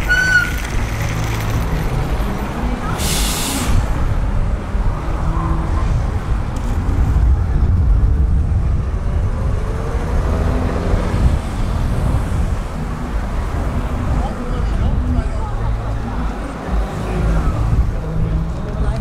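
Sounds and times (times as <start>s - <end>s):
diesel bus engine accelerating: 0.0s - 14.2s.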